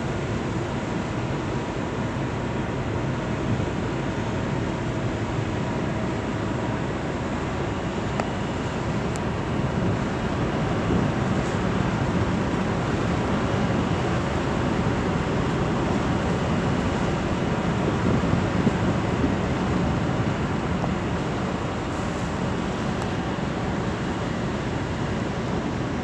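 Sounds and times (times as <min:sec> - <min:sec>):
ship engines rumbling: 0:00.0 - 0:26.0
wind noise on microphone: 0:08.3 - 0:26.0.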